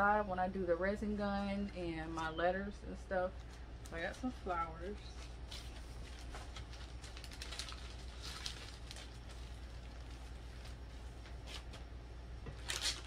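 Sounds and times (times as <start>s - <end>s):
low steady hum: 0.0s - 13.0s
plastic packaging crinkling: 3.4s - 13.0s.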